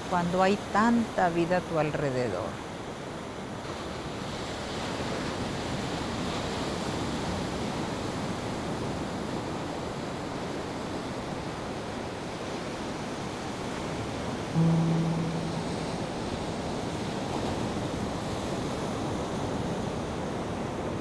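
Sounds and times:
low held tone: 0:14.6 - 0:16.5.

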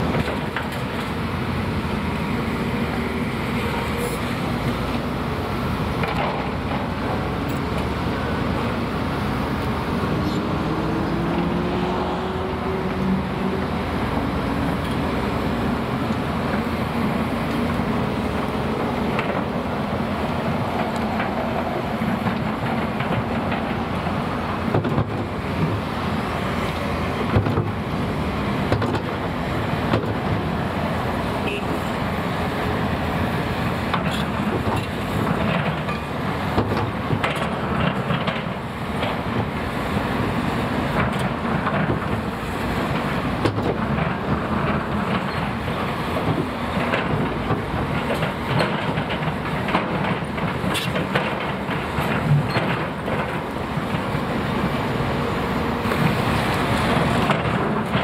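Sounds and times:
excavator engine running: 0:00.0 - 0:58.0.

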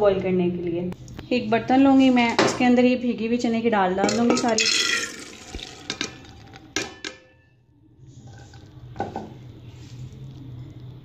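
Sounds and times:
lentils poured into a pot: 0:04.4 - 0:06.7
faint low hum: 0:06.1 - 0:11.0.

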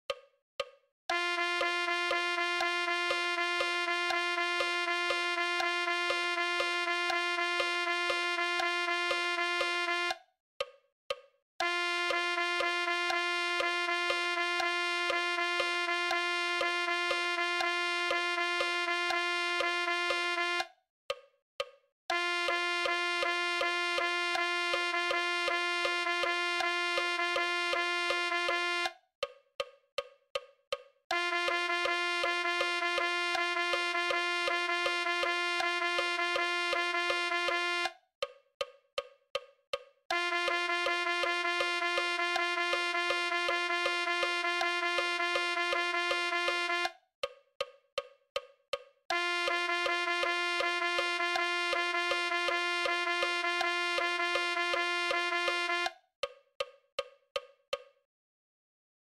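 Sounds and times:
metronome clicks: 0:00.1 - 0:00.8, 0:08.0 - 0:11.3, 0:20.1 - 0:21.8, 0:28.1 - 0:31.0, 0:37.1 - 0:40.0, 0:46.1 - 0:49.0, 0:55.4 - 0:57.9.

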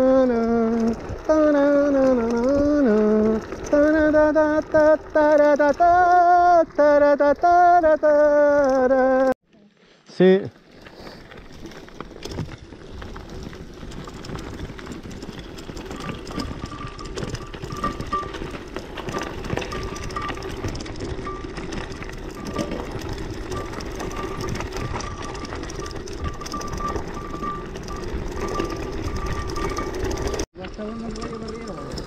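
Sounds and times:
bicycle freewheel buzz: 0:00.0 - 0:09.3, 0:10.6 - 0:32.0
tyres crunching on gravel: 0:10.5 - 0:32.0.

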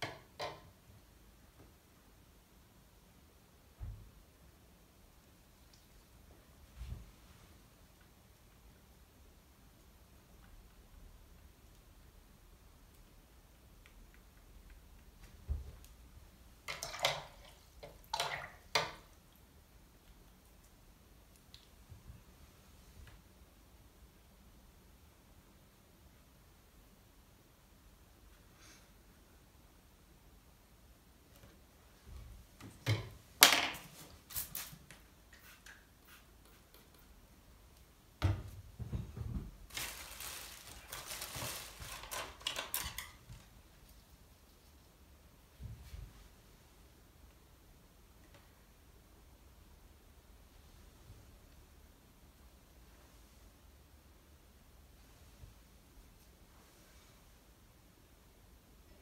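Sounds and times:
wet brush swishing and scrubbing: 0:34.1 - 0:37.1.

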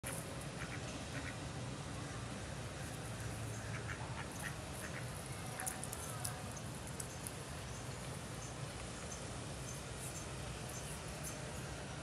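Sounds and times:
steady background noise: 0:00.0 - 0:12.0
ducks quacking: 0:00.6 - 0:01.4, 0:03.5 - 0:05.9.

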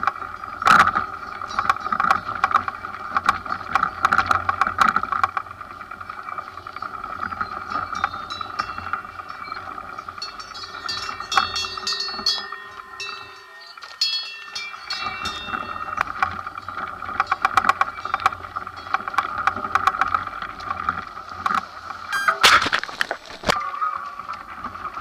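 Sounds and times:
bike clicks and rattles: 0:00.0 - 0:25.0
steady background noise: 0:00.0 - 0:25.0
tyres crunching over gravel: 0:00.0 - 0:25.0
bell-like ringing: 0:07.4 - 0:19.6, 0:22.1 - 0:22.4.

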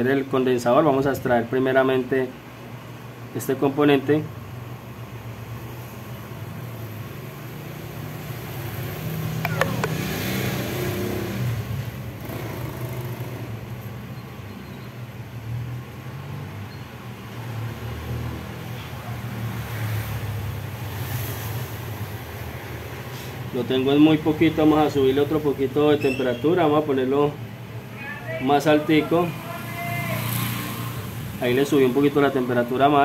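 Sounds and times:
hot-air station fan blowing: 0:00.0 - 0:33.0
short falling squeak: 0:26.0 - 0:26.4.

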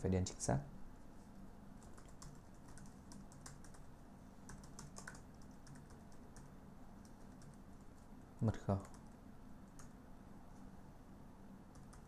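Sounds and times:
low steady hum: 0:00.0 - 0:12.0
typing on computer keyboard: 0:01.8 - 0:03.9, 0:04.5 - 0:08.1, 0:08.7 - 0:09.9, 0:11.7 - 0:12.0.

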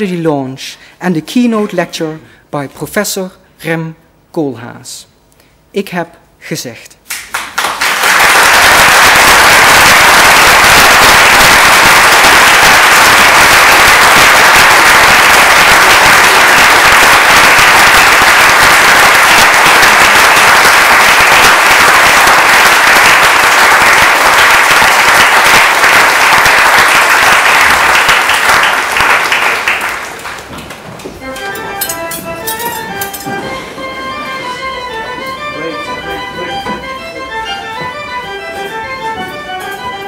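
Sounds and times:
audience applauding: 0:07.1 - 0:31.1.

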